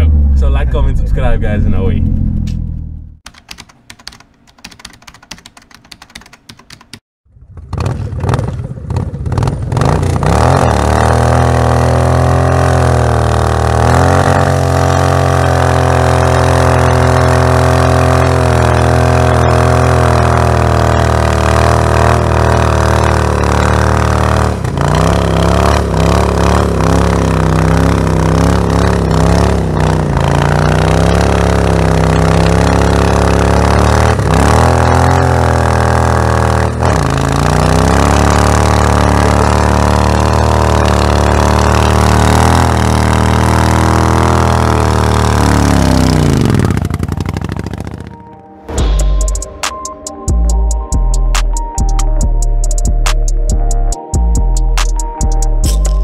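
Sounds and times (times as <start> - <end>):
motorcycle engine at high revs: 7.4 - 48.3.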